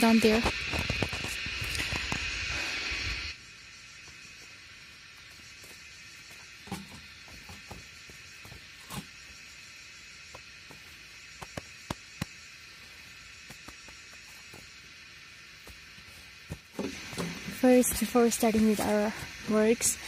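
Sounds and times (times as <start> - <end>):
insects buzzing: 0.0 - 20.0
footsteps on damp dirt path: 15.6 - 19.5.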